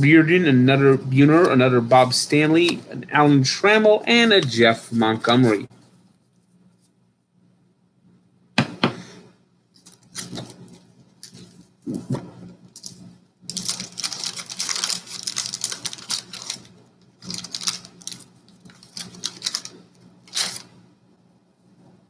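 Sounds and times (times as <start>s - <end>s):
card pack crackling and rustling: 9.8s - 12.1s, 12.7s - 20.7s.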